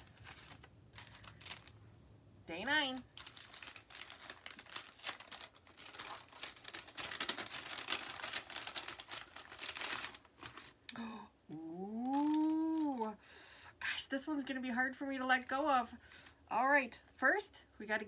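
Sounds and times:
paper rustling and crackling: 0.0 - 1.8, 2.8 - 10.8, 12.0 - 13.1.

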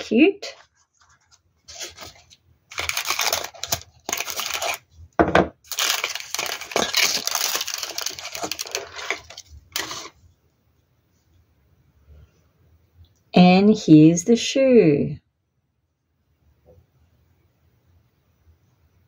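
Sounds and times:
tissue paper crinkling: 0.4 - 4.9, 5.6 - 10.2.

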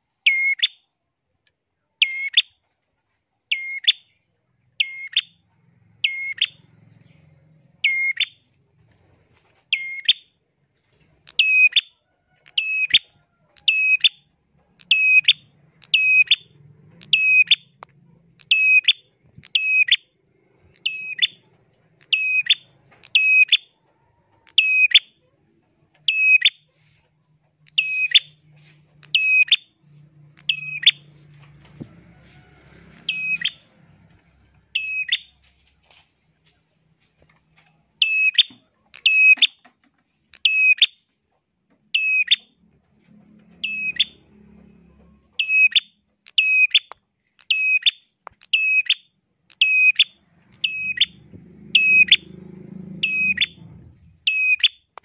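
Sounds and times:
bird calling shrill downsweeping notes: 27.7 - 28.4, 30.4 - 31.1, 33.0 - 33.7, 34.8 - 35.4, 43.6 - 44.2, 45.4 - 52.4, 53.0 - 54.9.

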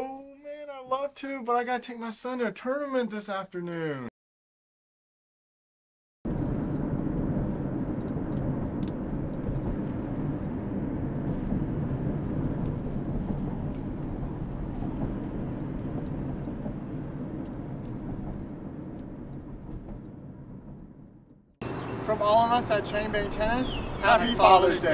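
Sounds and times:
car road and engine noise: 6.3 - 24.9.

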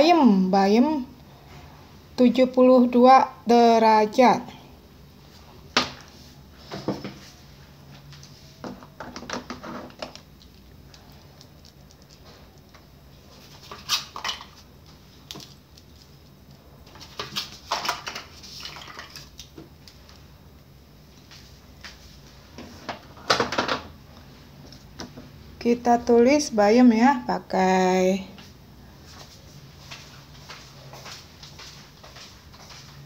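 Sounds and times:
writing and handling on a desk: 5.3 - 18.5.

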